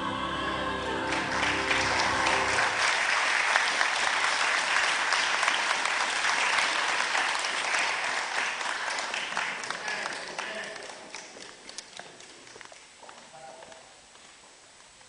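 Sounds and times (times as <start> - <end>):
dance music chord: 0.0 - 2.8
congregation applauding: 0.8 - 13.3.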